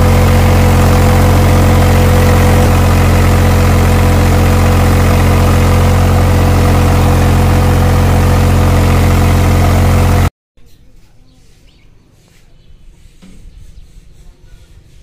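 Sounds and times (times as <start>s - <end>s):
tractor diesel engine running: 0.0s - 10.3s.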